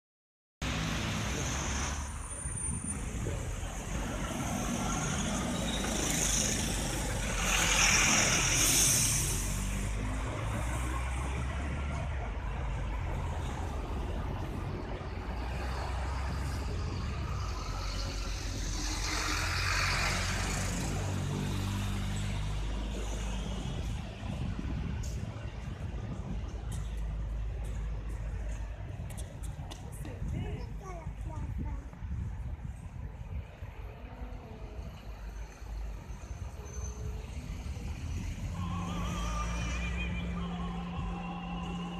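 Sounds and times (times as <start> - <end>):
vehicle passing with a hiss: 0.6 - 12.2, 13.2 - 25.5, 33.9 - 41.9
traffic rumble: 0.6 - 41.9.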